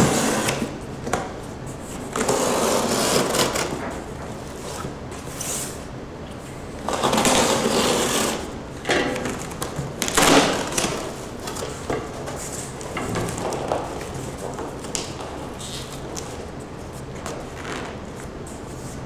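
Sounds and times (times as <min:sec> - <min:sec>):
cardboard scraping and rubbing: 0:01.8 - 0:05.8, 0:06.8 - 0:08.5.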